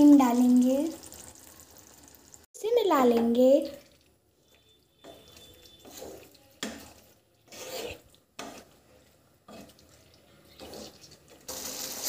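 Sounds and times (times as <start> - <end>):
spoon scraping a pan: 4.4 - 12.0.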